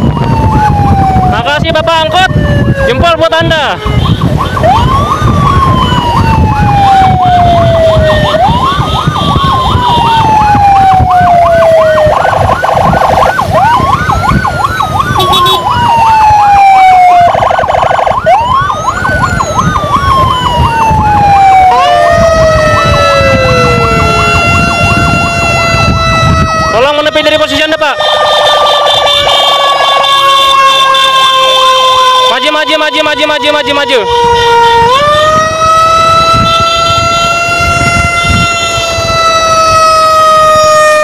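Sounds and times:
road rumble: 0:00.0 - 0:41.0
steady held siren tone: 0:00.0 - 0:41.0
wailing siren: 0:00.0 - 0:41.0
yelping siren: 0:00.0 - 0:41.0.

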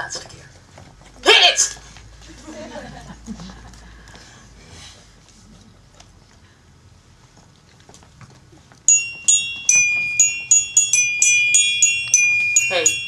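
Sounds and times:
toy glockenspiel notes: 0:08.9 - 0:13.0.

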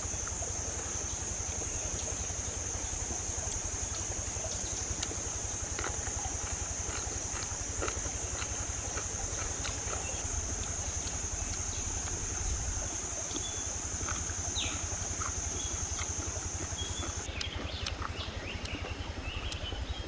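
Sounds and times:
insect chorus: 0:00.0 - 0:20.0.

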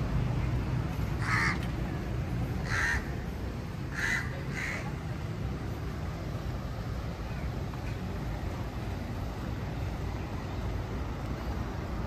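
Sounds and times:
street traffic rumble: 0:00.0 - 0:12.0
crow cawing: 0:01.2 - 0:01.7, 0:02.6 - 0:03.2, 0:03.9 - 0:04.9.

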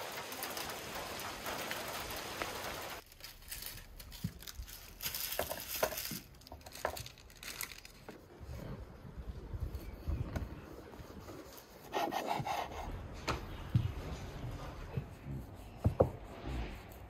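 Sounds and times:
steady rain hiss: 0:00.0 - 0:03.0
light knocks and rubbing: 0:13.3 - 0:16.5
rolling pin rolling dough on board: 0:13.7 - 0:16.8.

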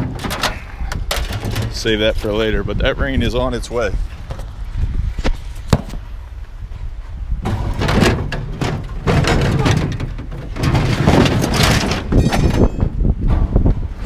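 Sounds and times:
sheet metal knocking and banging: 0:07.4 - 0:13.8.

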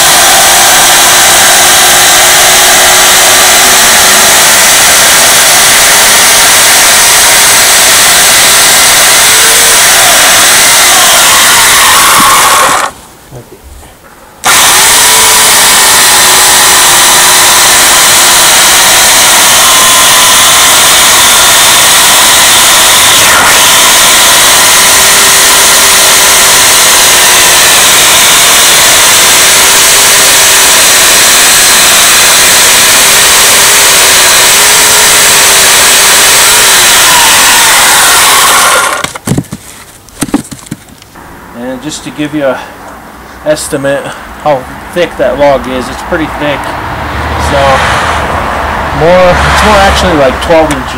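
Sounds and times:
electric chainsaw cutting log: 0:00.0 - 0:13.0, 0:14.4 - 0:39.2
wood knocks: 0:39.2 - 0:40.9.

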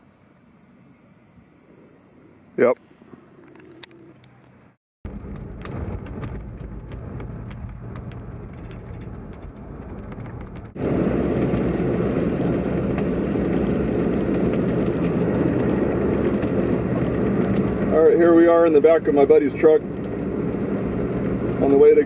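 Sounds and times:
vehicle road and engine noise: 0:00.0 - 0:22.0
small rattles: 0:05.1 - 0:10.8.

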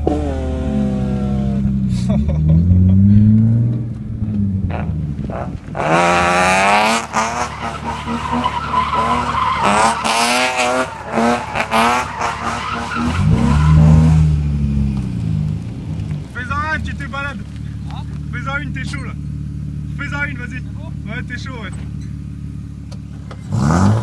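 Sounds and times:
car engine at high revs: 0:00.0 - 0:24.0
tyres squealing: 0:07.0 - 0:14.1.

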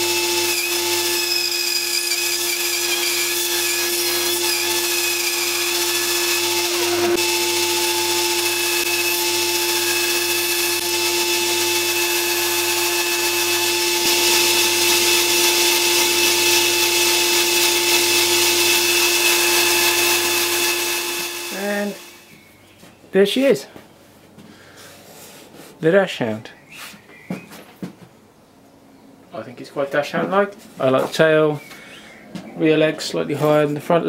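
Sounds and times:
bandsaw cutting wood: 0:00.0 - 0:22.3.

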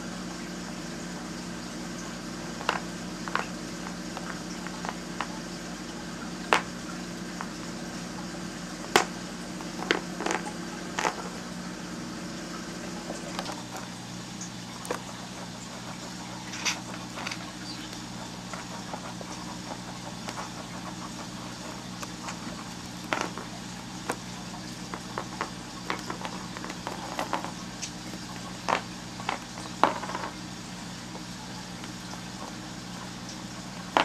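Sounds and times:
steady low hum: 0:00.0 - 0:34.0
bird pecking plastic pawns: 0:02.5 - 0:05.4, 0:06.5 - 0:06.8, 0:08.8 - 0:11.4, 0:13.1 - 0:13.9, 0:14.8 - 0:30.4.

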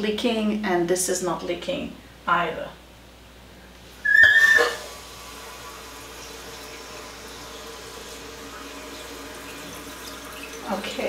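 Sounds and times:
high-pitched valve whistle: 0:04.0 - 0:04.8
toilet tank filling hiss: 0:04.0 - 0:11.0.

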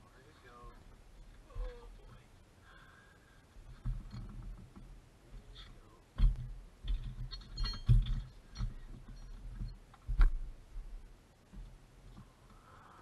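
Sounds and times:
dull thuds: 0:06.2 - 0:12.3.

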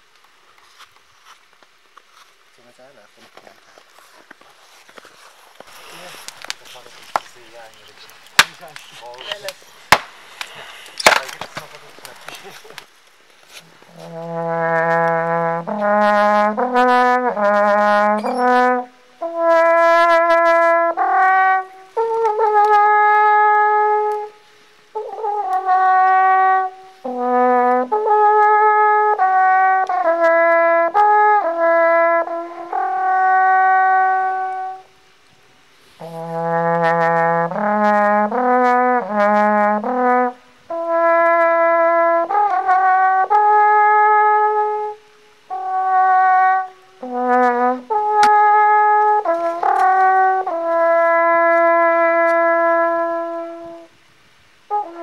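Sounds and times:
alphorn melody: 0:13.4 - 0:35.0, 0:35.9 - 0:54.0, 0:54.7 - 0:55.0.

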